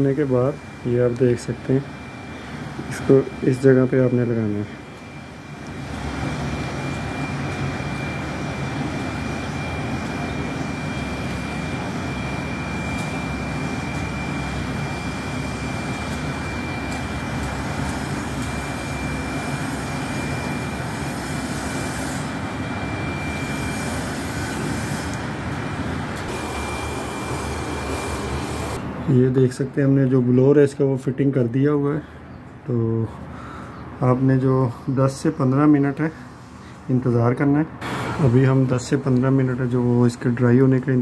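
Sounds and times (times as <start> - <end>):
machine running: 0.0 - 29.4, 37.7 - 41.0
thin high whine: 0.0 - 31.0.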